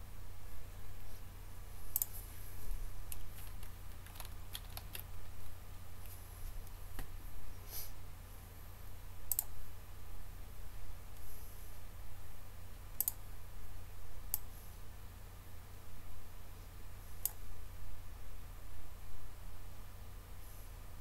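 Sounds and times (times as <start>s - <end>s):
keyboard typing: 3.1s - 6.1s.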